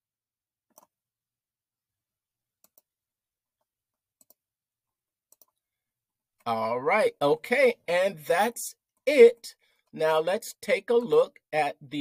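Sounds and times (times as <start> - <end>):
faint mouse clicks: 5.3 - 5.6.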